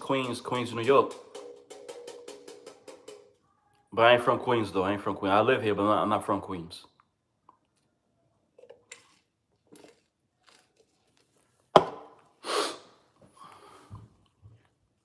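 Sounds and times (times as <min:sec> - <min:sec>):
sipping from bottle: 0:12.4 - 0:13.0.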